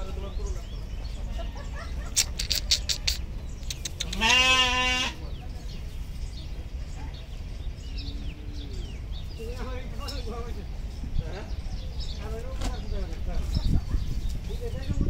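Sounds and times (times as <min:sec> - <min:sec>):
sharp clicks: 0:02.1 - 0:04.3
sheep bleating: 0:04.0 - 0:05.2.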